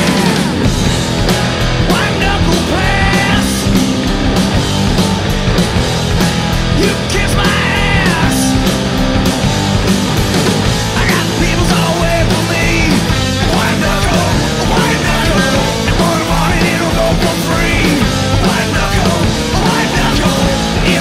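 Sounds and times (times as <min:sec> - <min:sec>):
rock music with singing: 0:00.0 - 0:21.0.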